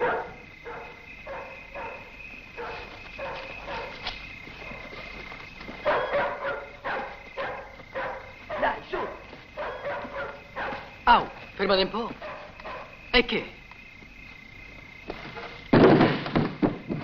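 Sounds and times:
dogs barking: 0:00.0 - 0:13.0
crickets chirring: 0:00.0 - 0:17.0.

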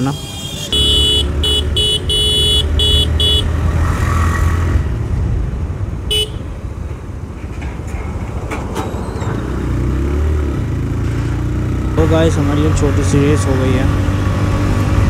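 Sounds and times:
horn beeps: 0:00.0 - 0:03.6
motorcycle engine rumble: 0:00.0 - 0:03.6.

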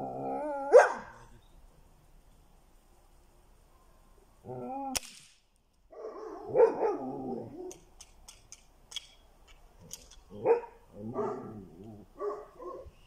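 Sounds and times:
dog barking: 0:00.7 - 0:01.2, 0:05.9 - 0:07.1, 0:10.4 - 0:11.6, 0:12.2 - 0:12.9.

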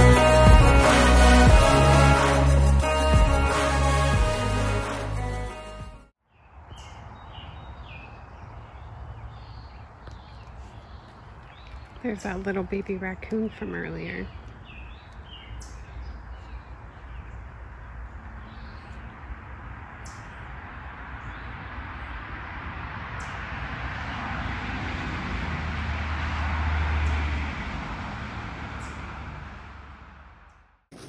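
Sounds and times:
vehicle passing by: 0:17.1 - 0:30.6.

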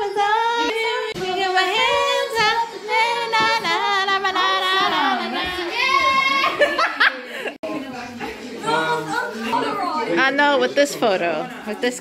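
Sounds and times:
woman singing unaccompanied: 0:00.0 - 0:06.2.

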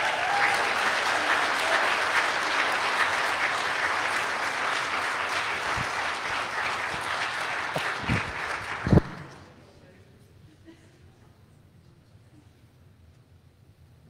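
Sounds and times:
congregation applauding: 0:00.0 - 0:09.6.

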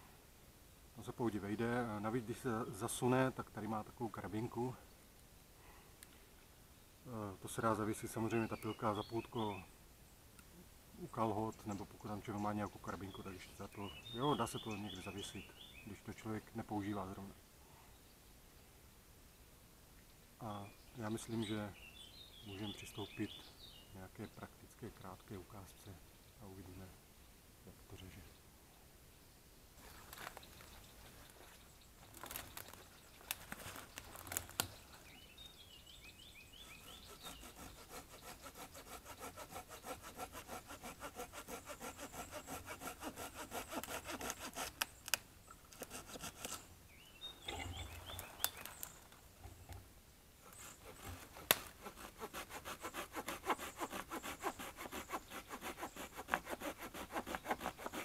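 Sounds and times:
hand saw cutting through branch: 0:32.1 - 0:32.8, 0:36.6 - 0:46.7, 0:50.4 - 0:58.0.

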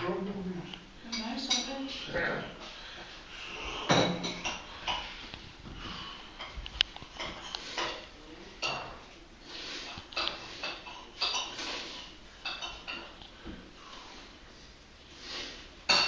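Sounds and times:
crockery and cutlery clinking: 0:01.1 - 0:02.0, 0:03.5 - 0:05.2, 0:06.4 - 0:09.2, 0:09.8 - 0:13.2.

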